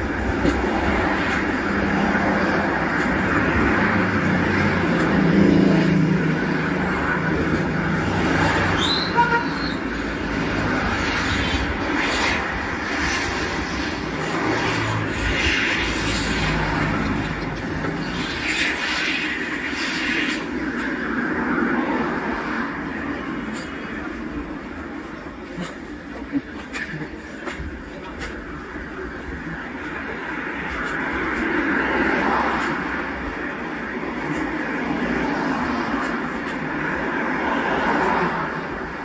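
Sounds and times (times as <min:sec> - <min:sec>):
cars driving past: 0:00.0 - 0:39.0.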